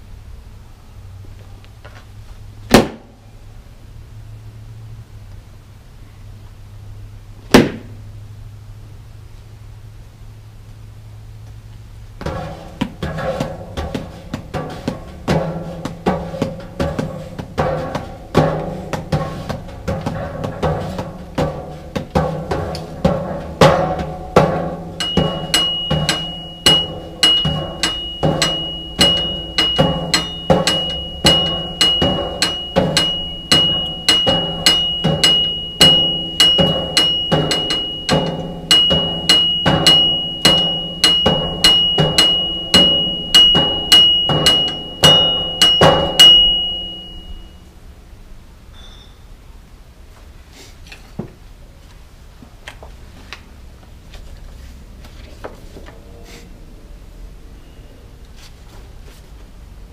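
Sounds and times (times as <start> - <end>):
drum and percussion music: 12.3 - 47.4
held pitched notes: 24.4 - 47.5
high steady tone: 25.0 - 47.7.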